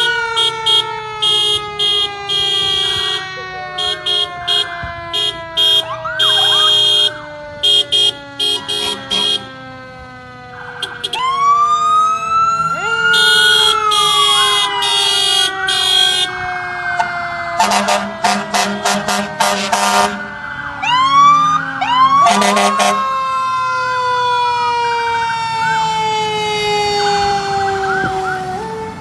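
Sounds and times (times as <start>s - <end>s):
emergency sirens wailing: 0.0s - 29.0s
short horn blasts: 0.4s - 9.5s, 17.6s - 20.2s, 22.3s - 23.0s.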